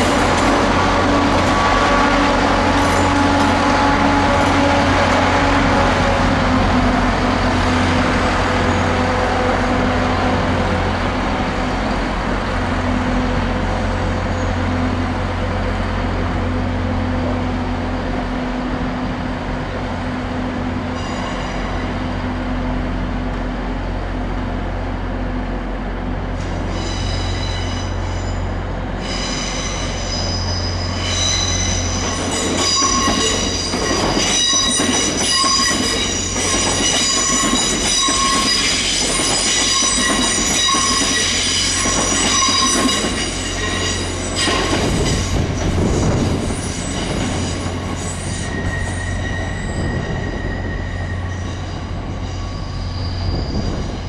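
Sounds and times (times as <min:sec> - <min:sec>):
train wheels squealing: 0:14.0 - 0:14.7, 0:20.9 - 0:22.1, 0:26.4 - 0:54.0.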